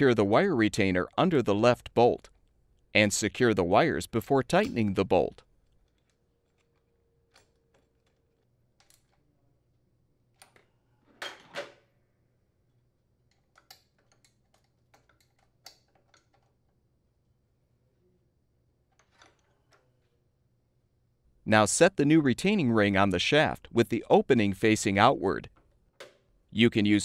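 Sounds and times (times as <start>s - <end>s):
tools clicking and tapping: 4.5s - 4.9s, 13.2s - 16.6s.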